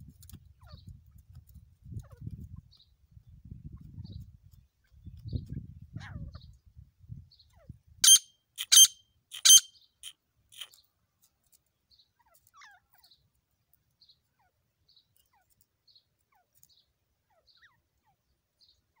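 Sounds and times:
faint high chirps: 8.0 - 10.8
francolin calling: 8.0 - 10.8.

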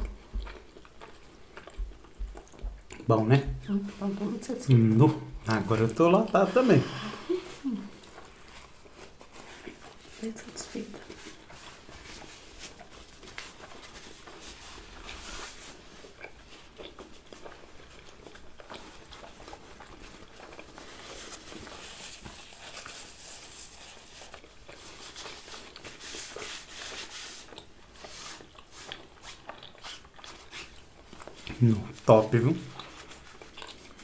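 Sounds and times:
people chewing: 0.0 - 34.0
paper napkin rustling: 5.6 - 16.1, 20.0 - 34.0.

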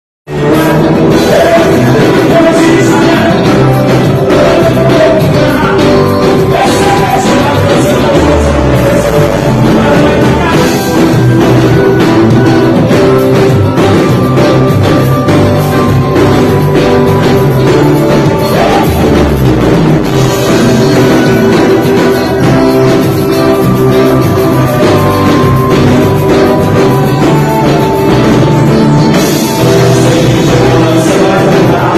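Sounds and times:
live band playing upbeat song: 0.3 - 31.9
person singing: 0.3 - 31.9
steady drum beat: 0.3 - 31.9.

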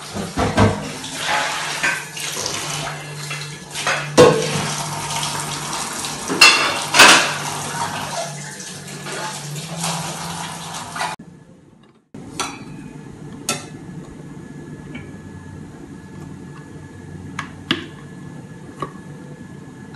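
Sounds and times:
dishes and utensils clinking: 6.3 - 7.5, 11.8 - 13.8.

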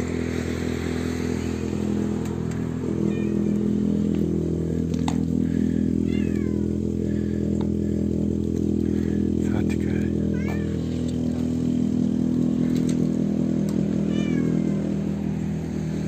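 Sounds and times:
low motor hum: 0.0 - 16.0
cat meowing: 3.1 - 3.6, 6.0 - 6.8, 10.3 - 10.8, 14.0 - 14.9.

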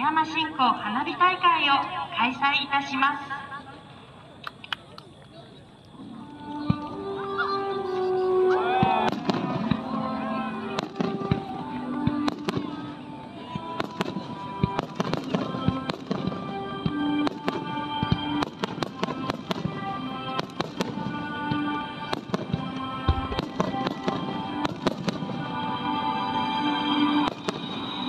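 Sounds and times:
music of long held notes: 5.8 - 28.0
firework shells bursting: 20.4 - 21.2.

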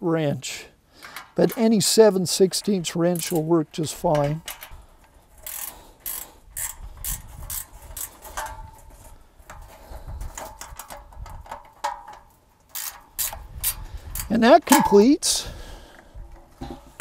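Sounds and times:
ratchet wrench clicking: 3.1 - 8.6, 12.7 - 14.9.

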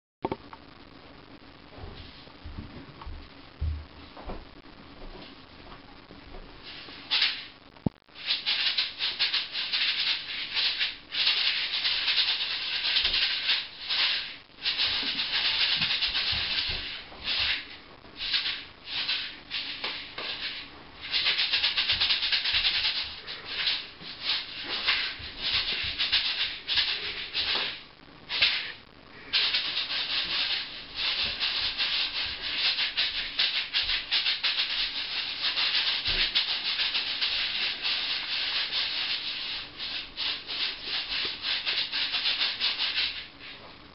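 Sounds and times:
maracas rattling: 8.2 - 17.6, 18.2 - 28.7, 29.3 - 43.3.

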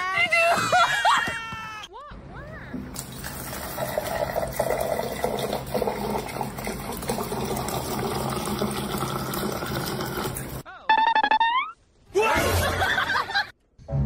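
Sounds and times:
water pouring into plastic cup: 3.0 - 10.6.

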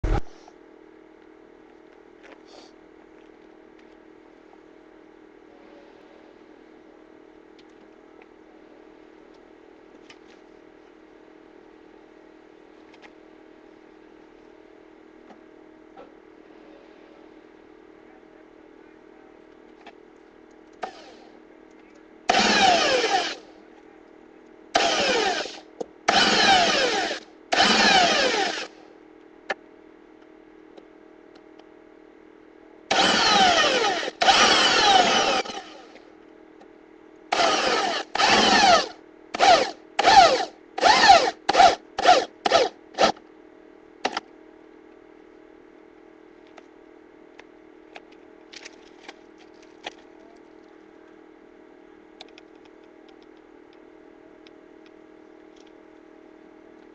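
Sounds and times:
steady low hum: 0.0 - 56.9
power drill bursts: 20.8 - 21.2, 22.3 - 23.4, 24.8 - 28.7, 32.9 - 35.9, 37.3 - 43.2.

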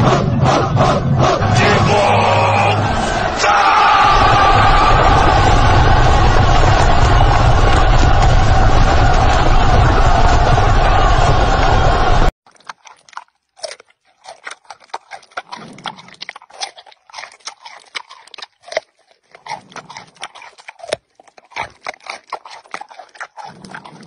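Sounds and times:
panda chewing carrot crunches: 12.4 - 24.0.

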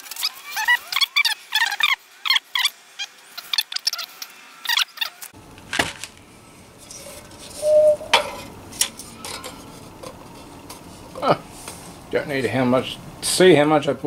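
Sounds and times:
short ringing tone: 7.6 - 8.3.

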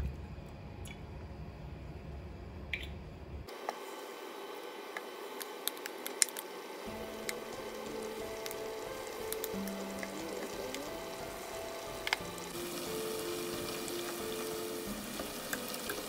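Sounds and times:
food sizzling in hot oil: 6.8 - 16.0.

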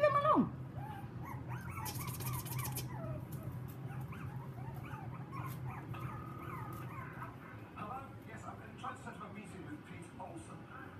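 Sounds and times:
puppies yelping and whining: 0.7 - 7.7.

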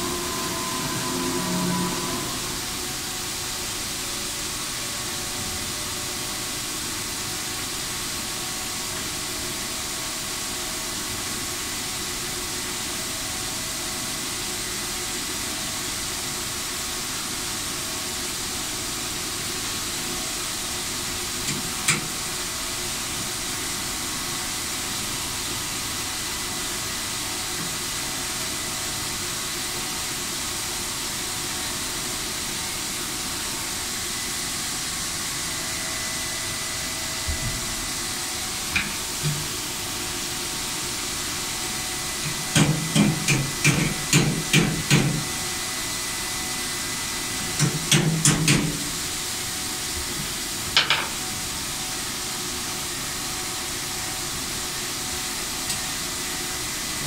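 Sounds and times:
machine hissing: 0.0 - 3.9
high whine tones: 0.0 - 4.0.

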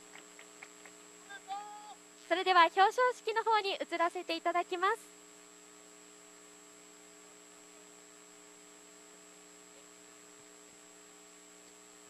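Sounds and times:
faint electrical hum: 0.0 - 12.0
thin high whine: 0.0 - 12.0.

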